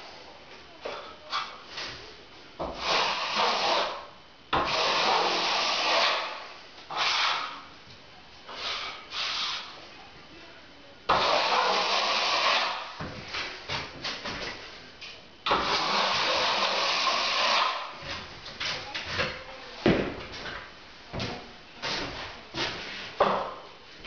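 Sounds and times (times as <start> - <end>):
trowel scraping wet plaster: 2.8 - 7.6, 11.1 - 12.9, 15.5 - 17.9.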